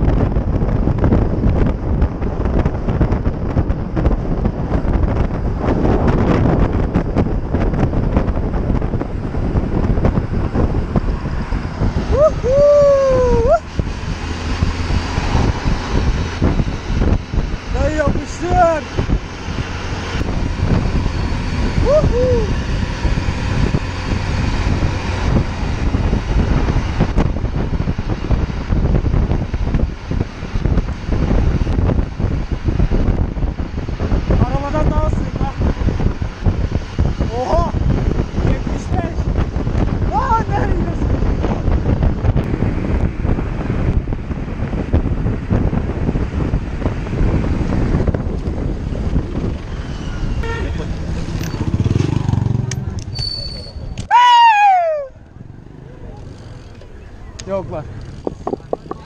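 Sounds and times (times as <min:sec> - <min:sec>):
road traffic rumble: 0:00.0 - 0:59.0
wind buffeting microphone: 0:00.0 - 0:59.0
high tone rising and falling: 0:51.3 - 0:55.9.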